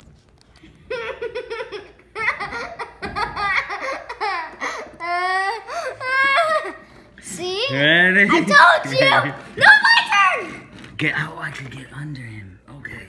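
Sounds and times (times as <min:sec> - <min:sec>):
young child laughing: 0:00.9 - 0:06.8.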